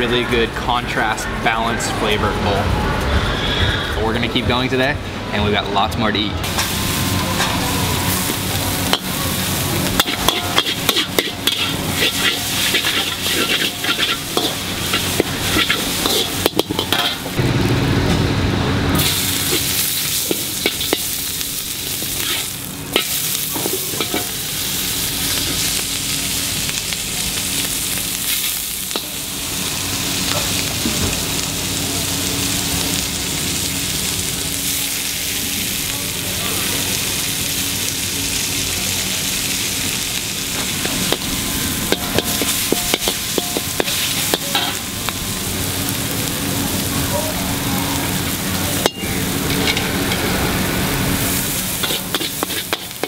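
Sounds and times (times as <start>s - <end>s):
oil sizzling: 6.4s - 53.0s
metal spatula clanking on wok: 9.9s - 17.4s, 22.2s - 24.4s, 41.9s - 44.9s, 48.8s - 50.2s, 51.8s - 53.0s.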